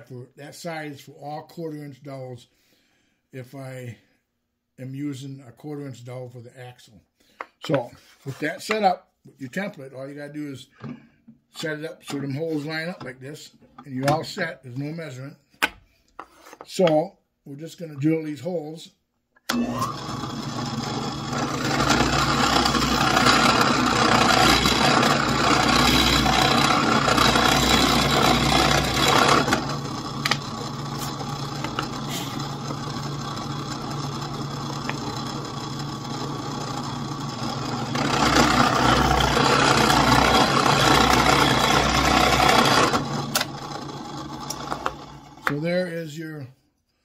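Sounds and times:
drill bit boring through wood: 19.5 - 45.6
drill press motor humming: 19.5 - 45.6.

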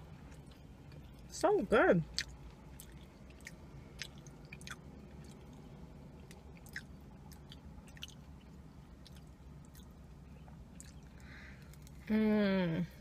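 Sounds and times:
steady low hum: 0.0 - 13.0
mouth clicks chewing: 10.8 - 11.1.

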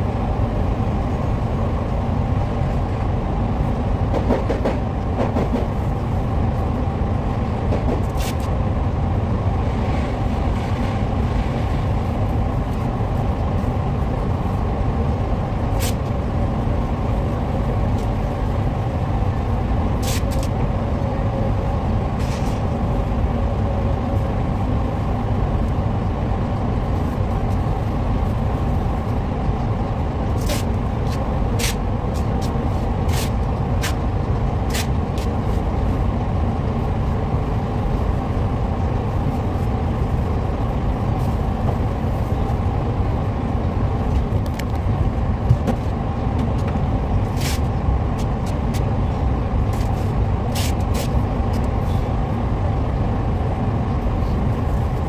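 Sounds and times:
ventilation fans droning: 0.0 - 55.0.

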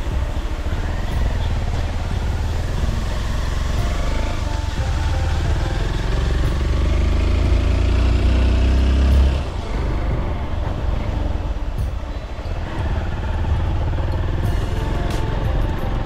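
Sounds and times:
motorcycle engine rumbling: 0.0 - 16.0.

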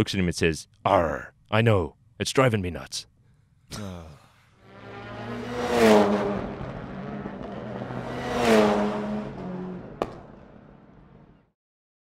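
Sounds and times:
car engine revving: 4.6 - 11.4.

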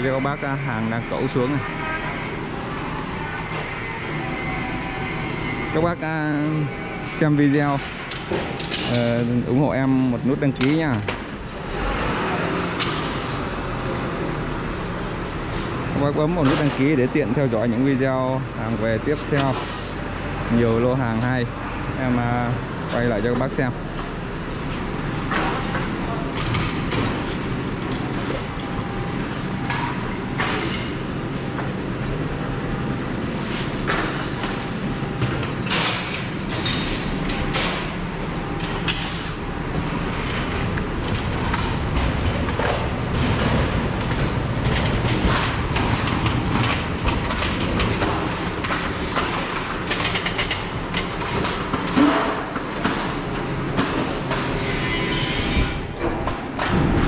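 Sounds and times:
crane engine running: 0.0 - 16.0, 19.6 - 57.0
metal clanks and knocks: 40.2 - 57.0.

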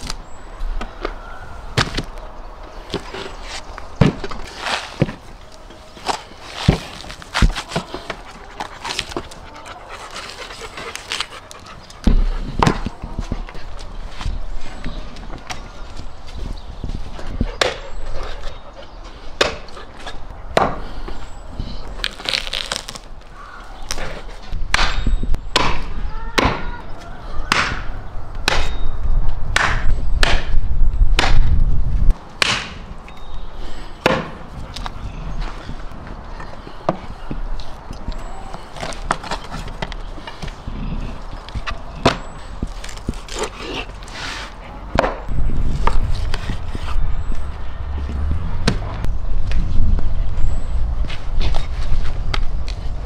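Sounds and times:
cleaver chopping meat and bone: 19.4 - 19.7, 24.7 - 26.7, 27.5 - 28.9, 29.5 - 30.6, 32.4 - 32.8, 34.0 - 34.4, 41.5 - 43.9
low rumble: 45.3 - 51.4.

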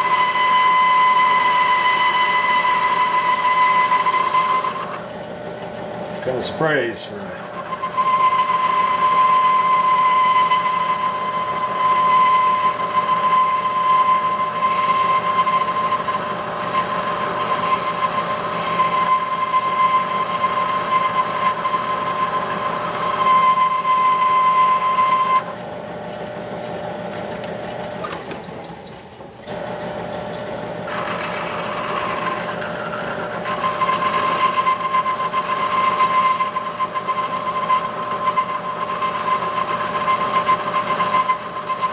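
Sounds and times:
lathe cutting metal whine: 0.0 - 5.1, 6.2 - 28.0, 29.5 - 41.9.

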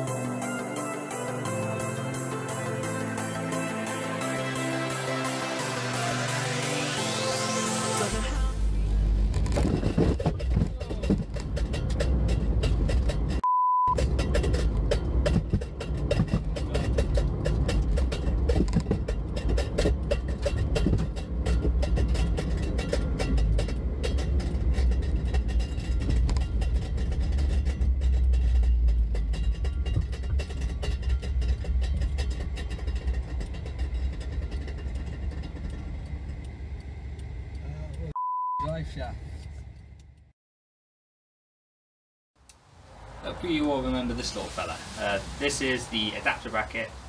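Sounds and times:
car engine and road rumble: 0.0 - 40.3, 42.4 - 47.0
short beep tone: 13.4 - 14.0, 38.2 - 38.7.

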